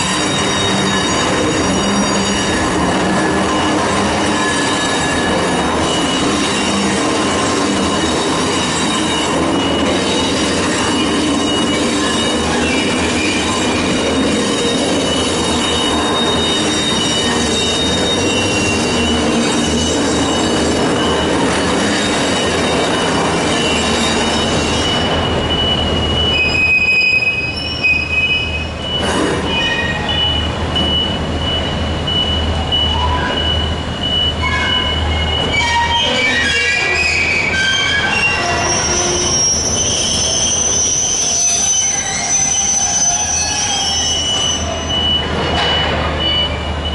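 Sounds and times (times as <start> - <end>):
train wheels squealing on rails: 0.0 - 46.9.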